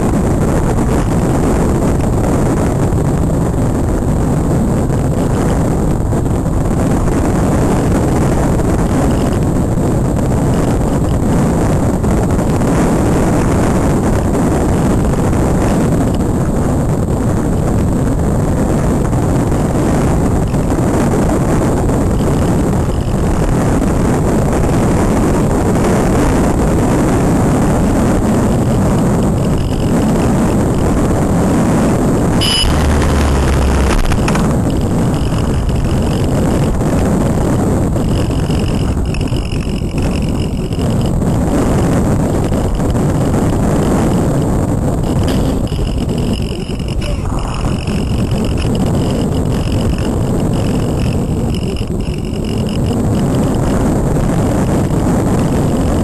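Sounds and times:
wind rushing over camera: 0:00.0 - 0:56.0
faint high whine: 0:25.4 - 0:54.8.

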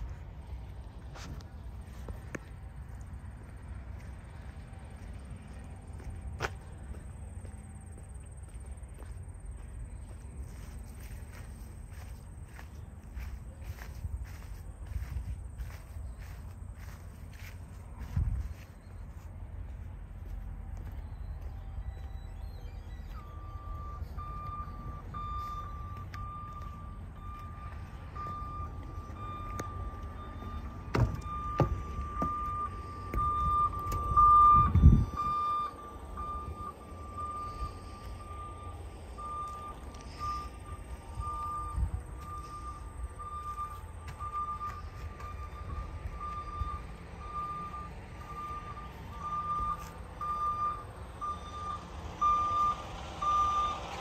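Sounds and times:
reversing alarm beeping: 0:20.7 - 0:54.0
knocks and thumps: 0:30.9 - 0:32.4.

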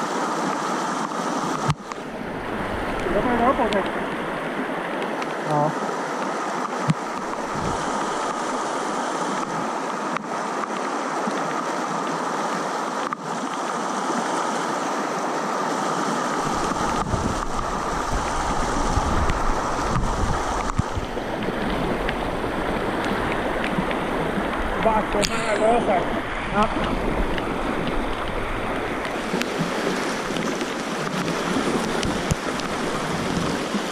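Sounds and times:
river rushing over rocks: 0:00.0 - 0:33.9
low rumble: 0:02.0 - 0:04.7.

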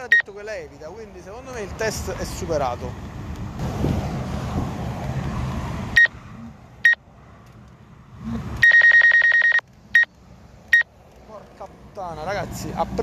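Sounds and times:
high warning beeps: 0:00.0 - 0:00.4, 0:08.6 - 0:10.1
steady rushing noise: 0:01.4 - 0:08.6.

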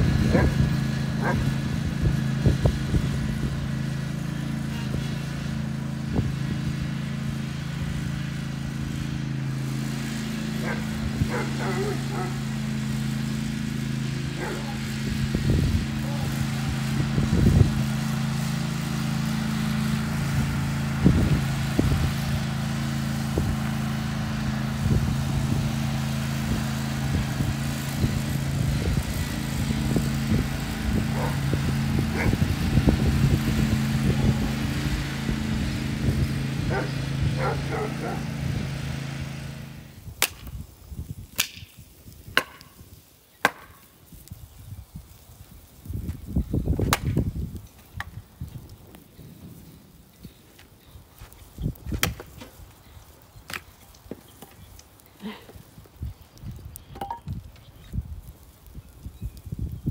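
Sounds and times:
riding lawn mower engine running: 0:00.0 - 0:59.9
axe striking log: 0:40.2 - 0:40.5, 0:41.4 - 0:41.7, 0:42.3 - 0:42.8, 0:43.4 - 0:43.8, 0:46.9 - 0:47.2.

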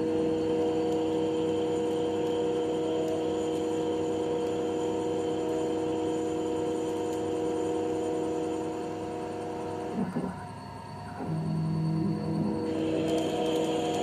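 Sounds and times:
lathe humming with held tones: 0:00.0 - 0:14.0.

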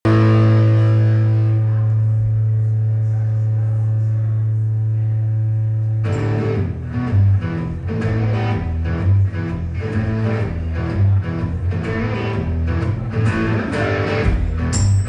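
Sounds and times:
electric guitar chord ringing: 0:00.1 - 0:02.6, 0:06.0 - 0:10.8
electric guitar strumming: 0:00.1 - 0:02.9, 0:05.6 - 0:15.0.

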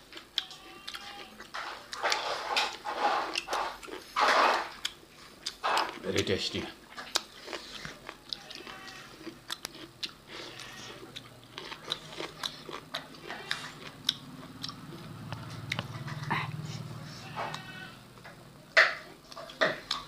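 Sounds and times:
people chewing and smacking: 0:00.0 - 0:20.0.

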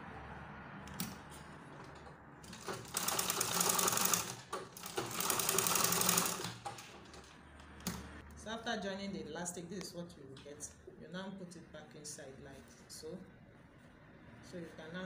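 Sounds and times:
sewing machine stitching: 0:01.8 - 0:07.2.

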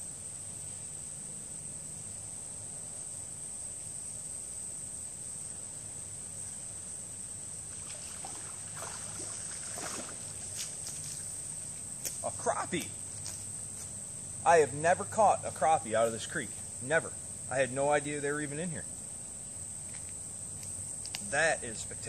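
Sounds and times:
insects droning: 0:00.0 - 0:22.0
fish splashing at surface: 0:07.7 - 0:10.6.

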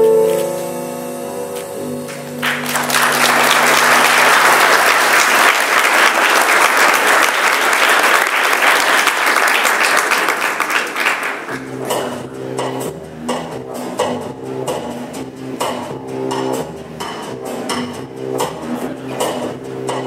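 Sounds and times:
audience applauding: 0:02.1 - 0:11.7.

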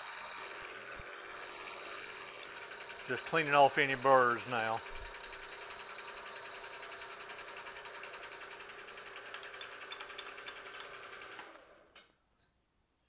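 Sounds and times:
milling machine cutting metal: 0:00.0 - 0:11.5.

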